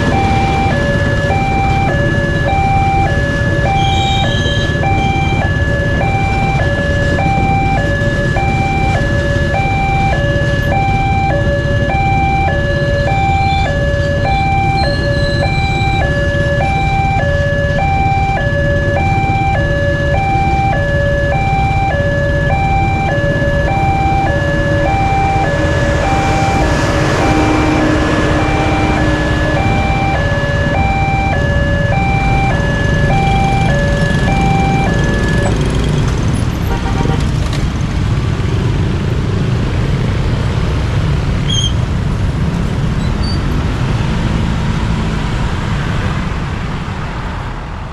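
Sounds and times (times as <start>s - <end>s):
two-tone crossing alarm: 0.0s - 37.2s
train rumbling past: 24.4s - 41.2s.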